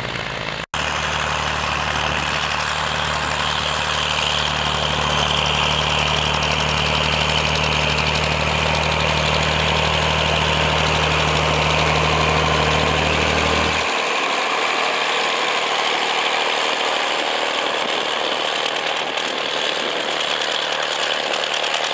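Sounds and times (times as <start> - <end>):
engine rattling: 0.0 - 21.9
tractor diesel engine running: 0.0 - 21.9
fast fine ticking: 15.8 - 21.9.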